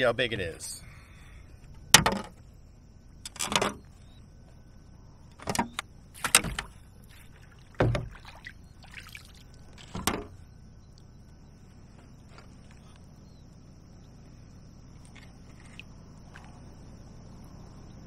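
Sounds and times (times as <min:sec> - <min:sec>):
bumps and rattles against kayak: 0:01.6 - 0:02.6, 0:03.2 - 0:04.6, 0:05.3 - 0:08.7, 0:09.5 - 0:10.4.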